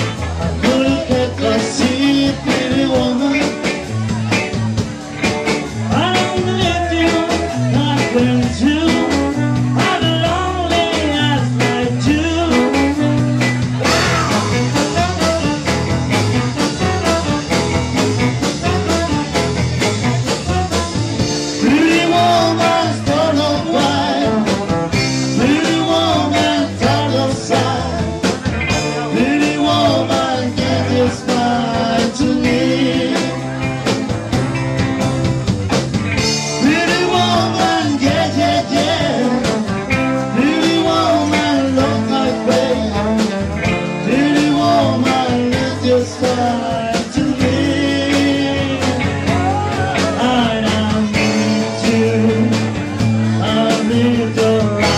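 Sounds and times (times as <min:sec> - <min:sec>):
live band playing: 0:00.0 - 0:54.9
trombone: 0:12.5 - 0:27.7.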